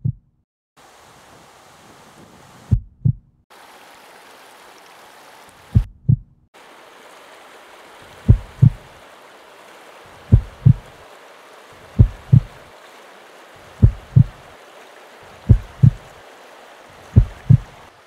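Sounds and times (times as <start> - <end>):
heartbeat thumps: 0.0 - 0.3, 2.7 - 3.3, 5.7 - 6.4, 8.3 - 8.8, 10.3 - 10.9, 11.9 - 12.6, 13.8 - 14.4, 15.5 - 16.1, 17.1 - 17.8
stream rushing over rocks: 0.8 - 2.7, 3.5 - 5.8, 6.6 - 18.0.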